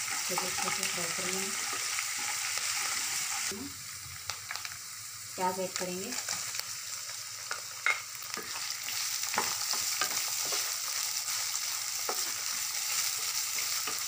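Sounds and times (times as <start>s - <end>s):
onions sizzling in hot oil: 0.0s - 14.0s
spatula scraping and tapping pan: 9.3s - 10.8s.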